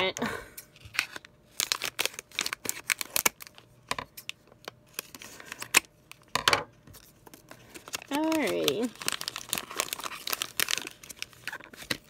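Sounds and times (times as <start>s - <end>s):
scissors snipping foil: 7.9s - 12.0s.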